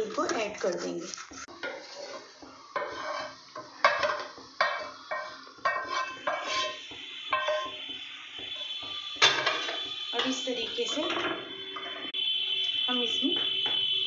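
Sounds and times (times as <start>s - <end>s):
spoon scraping frying pan: 0.0s - 7.9s, 9.2s - 12.1s.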